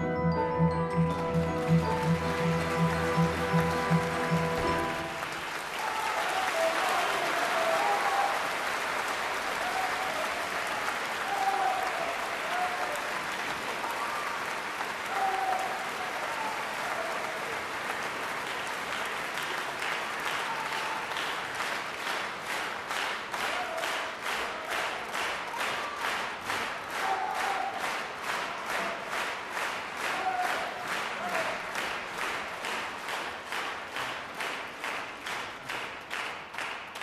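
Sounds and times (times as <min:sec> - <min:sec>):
orchestra holding final chord: 0:00.0 - 0:05.7
audience applause: 0:00.0 - 0:37.0
rhythmic clapping in unison: 0:00.0 - 0:37.0.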